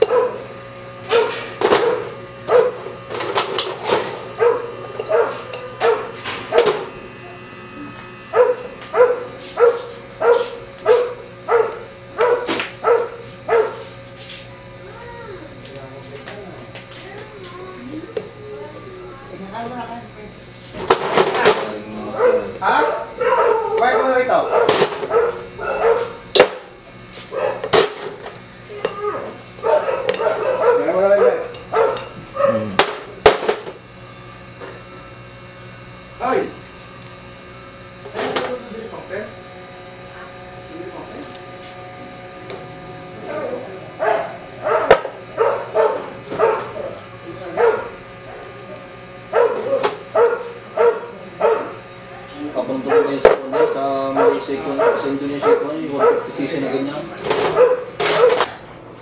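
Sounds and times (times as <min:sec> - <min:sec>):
dog barking: 0:00.0 - 0:00.4, 0:01.1 - 0:02.8, 0:04.4 - 0:06.6, 0:08.3 - 0:13.8, 0:22.2 - 0:26.2, 0:27.3 - 0:27.7, 0:29.1 - 0:32.7, 0:44.0 - 0:46.9, 0:47.5 - 0:48.6, 0:49.3 - 0:51.8, 0:52.8 - 0:56.4, 0:57.5 - 0:58.5.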